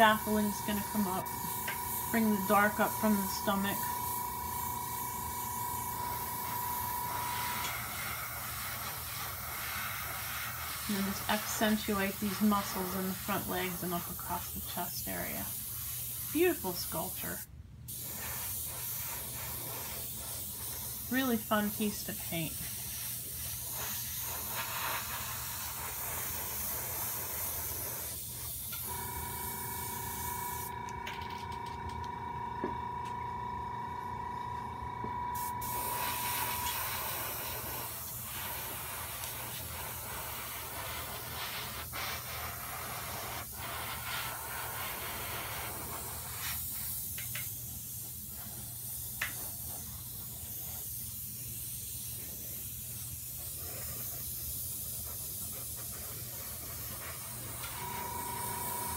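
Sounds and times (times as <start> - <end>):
steady multi-pitch tone: 0.0 - 7.7, 57.8 - 58.9
airbrush spraying hiss: 0.0 - 30.8, 35.4 - 58.9.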